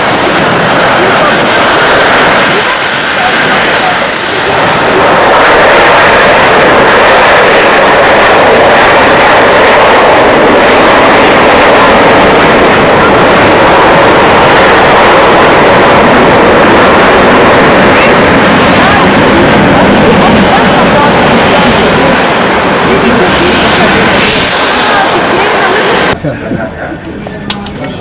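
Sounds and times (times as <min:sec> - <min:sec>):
jet engines running: 0:00.0 - 0:28.0.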